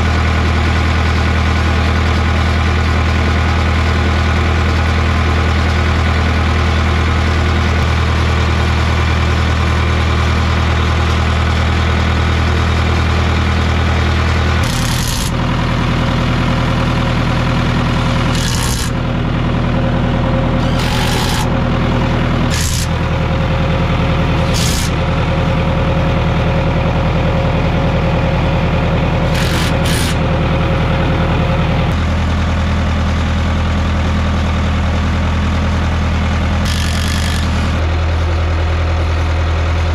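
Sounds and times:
diesel bulldozer idling: 0:00.0 - 0:39.9
cordless impact driver buzzing: 0:14.6 - 0:15.4, 0:18.3 - 0:19.0, 0:20.6 - 0:21.5, 0:22.5 - 0:23.0, 0:24.4 - 0:25.0, 0:29.2 - 0:30.2, 0:36.6 - 0:37.8.

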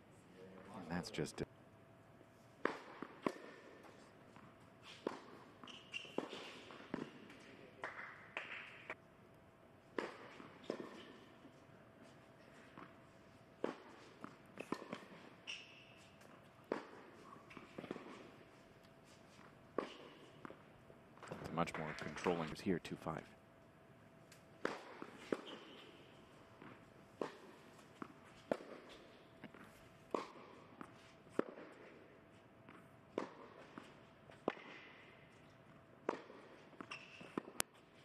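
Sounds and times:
rackets hitting tennis ball: 0:02.6 - 0:09.0, 0:09.9 - 0:13.0, 0:13.6 - 0:22.5, 0:24.3 - 0:38.0
tennis ball bouncing on hard court: 0:02.6 - 0:09.0, 0:09.9 - 0:11.6, 0:13.6 - 0:22.4, 0:24.4 - 0:37.9
shoe squeaks: 0:04.8 - 0:06.9, 0:14.6 - 0:16.3, 0:25.1 - 0:26.2, 0:36.8 - 0:37.4.

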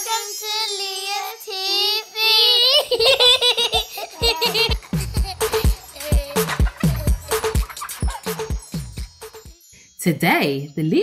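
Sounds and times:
electronic beat: 0:04.2 - 0:09.6.

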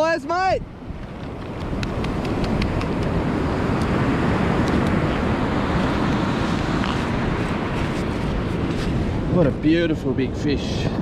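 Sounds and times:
wave washing over sand: 0:00.0 - 0:11.0
wind on microphone: 0:00.0 - 0:11.0.

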